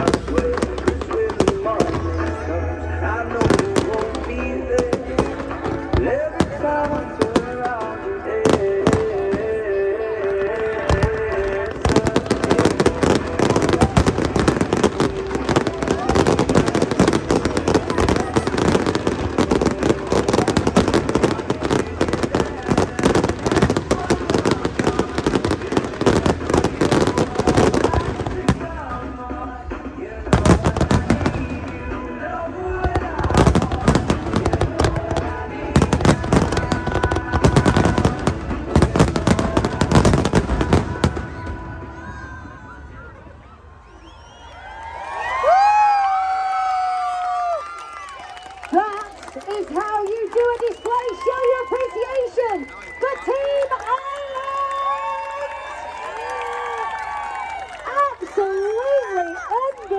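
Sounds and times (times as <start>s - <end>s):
fireworks crackling barrage: 0.0s - 43.6s, 45.3s - 59.9s
music playing: 0.0s - 43.6s.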